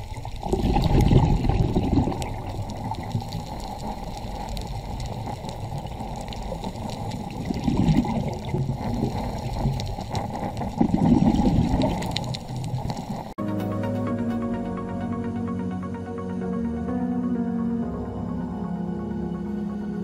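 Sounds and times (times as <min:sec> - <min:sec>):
low underwater noise: 0:00.0 - 0:13.4.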